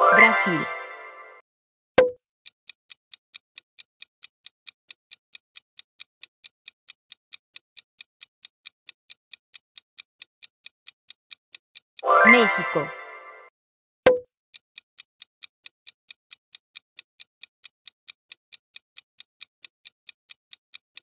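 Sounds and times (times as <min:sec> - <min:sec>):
clock ticking: 0:02.0 - 0:13.4, 0:14.1 - 0:21.0.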